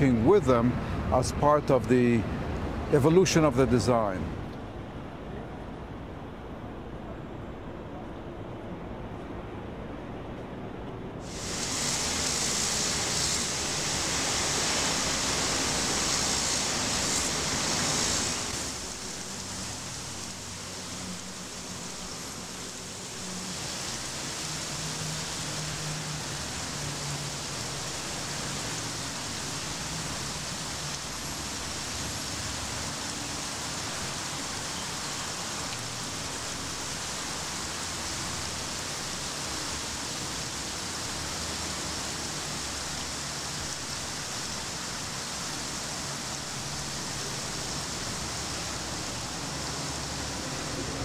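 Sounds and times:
water splashing down metal troughs: 11.2s - 21.4s.

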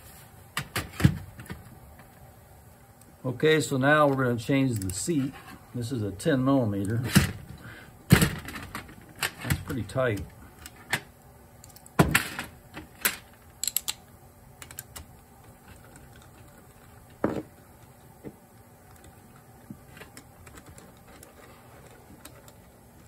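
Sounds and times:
metal parts clicking and tapping: 13.0s - 14.0s.

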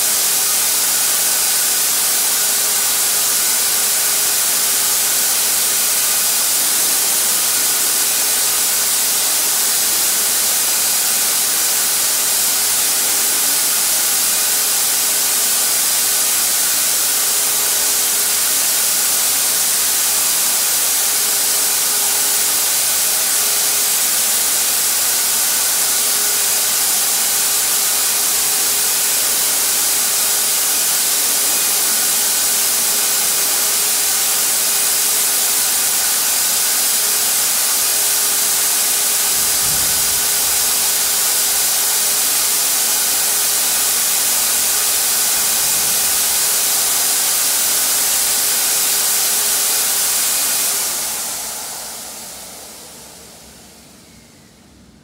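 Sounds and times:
paint sprayer air rush: 0.0s - 54.2s
turbine whine: 17.0s - 55.0s.

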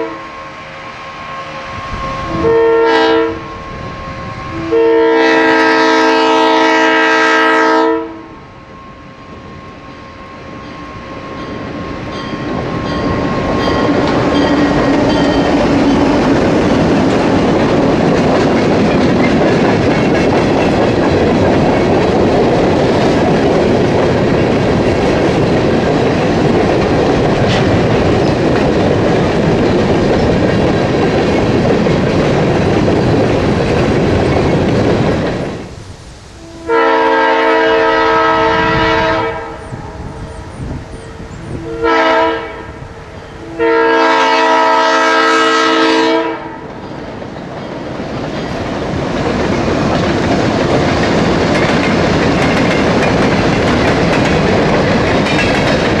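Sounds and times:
locomotive air horn: 0.0s - 8.4s, 36.4s - 46.7s
train wheels clattering on rail: 8.7s - 35.7s, 45.5s - 56.0s.

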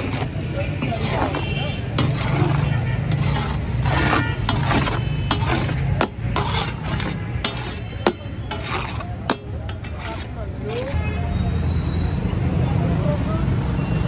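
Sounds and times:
metal clanking on griddle: 0.0s - 10.3s
metal spatula scraping griddle: 0.0s - 11.1s.

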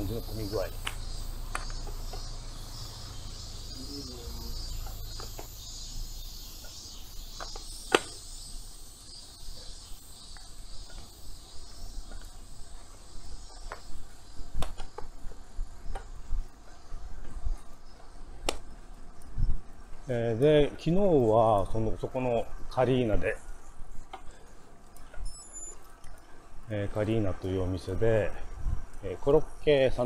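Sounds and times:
cicadas buzzing: 0.0s - 30.0s
sharp clicks: 0.8s - 2.3s, 6.6s - 8.2s.

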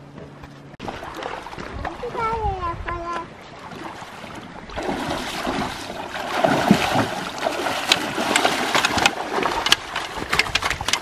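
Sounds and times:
footsteps through shallow water: 0.8s - 2.2s, 3.4s - 11.0s
fish thrashing in water: 3.6s - 11.0s.

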